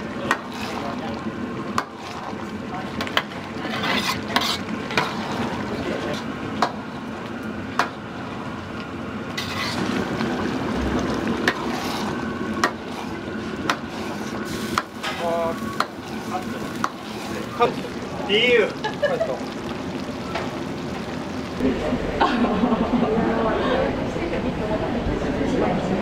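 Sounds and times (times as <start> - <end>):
food sizzling in a wok: 0.0 - 7.2, 9.3 - 21.6.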